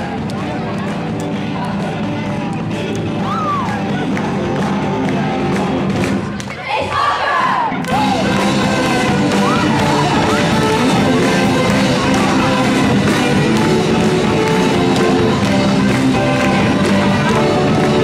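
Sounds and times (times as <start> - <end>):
electric guitar: 7.9 - 18.0
saxophone melody: 7.9 - 18.0.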